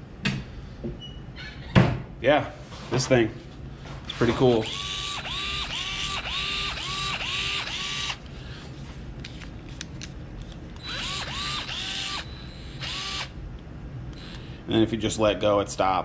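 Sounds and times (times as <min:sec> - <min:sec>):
screwdriver motor whirring: 0:04.6 - 0:08.3, 0:10.8 - 0:13.4, 0:14.1 - 0:14.4.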